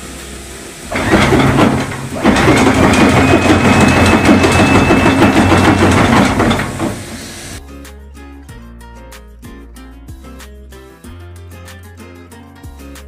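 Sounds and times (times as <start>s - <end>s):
windlass motor humming: 0.8s - 7.6s.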